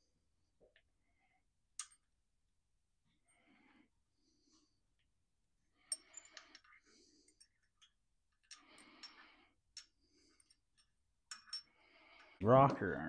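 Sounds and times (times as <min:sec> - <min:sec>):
small metal parts clicking: 0:01.8 - 0:02.1, 0:05.9 - 0:12.3.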